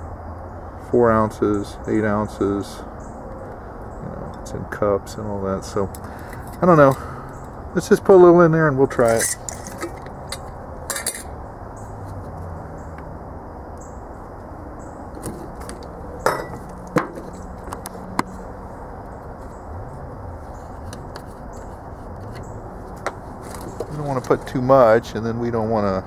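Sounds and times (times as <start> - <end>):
low background noise: 0.0 - 26.0
glass jar clinks and knocks: 9.0 - 11.3, 16.2 - 17.2.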